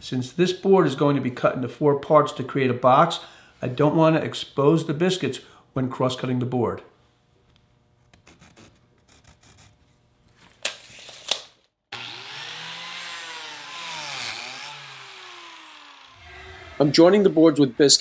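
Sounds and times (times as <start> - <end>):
biscuit joiner cutting wood: 11.9 - 18.0.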